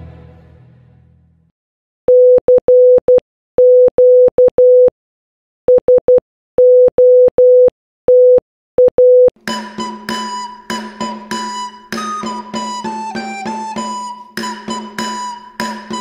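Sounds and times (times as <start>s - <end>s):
morse code beeps: 2.1s - 4.9s, 5.7s - 14.6s.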